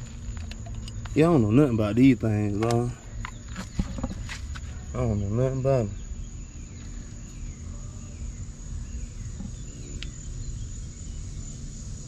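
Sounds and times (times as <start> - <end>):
crickets trilling: 0.0 - 12.0
low outdoor rumble: 0.0 - 12.0.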